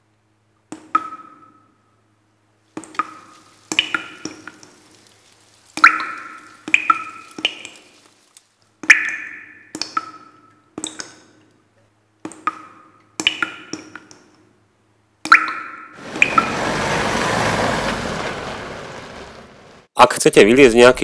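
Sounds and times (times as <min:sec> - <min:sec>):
ice tools striking ice: 0:02.8 - 0:08.4.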